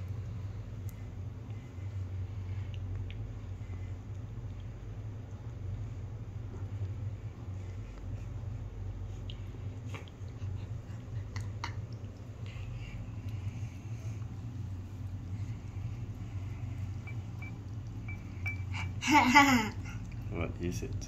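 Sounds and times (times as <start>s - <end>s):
low hum: 0.0s - 21.0s
cat chewing and licking: 0.1s - 19.0s, 19.6s - 21.0s.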